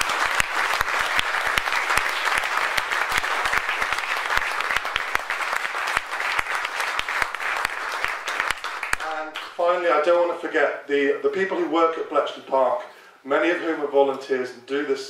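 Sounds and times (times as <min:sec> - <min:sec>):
audience applauding: 0:00.0 - 0:09.6.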